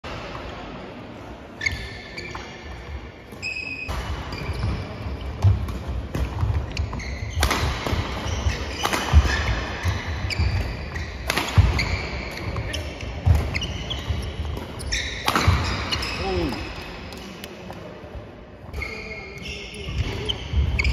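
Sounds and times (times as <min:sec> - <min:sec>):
shoes squeaking: 0:01.6 - 0:05.5, 0:06.2 - 0:16.6
rackets striking shuttlecock: 0:05.4 - 0:16.0.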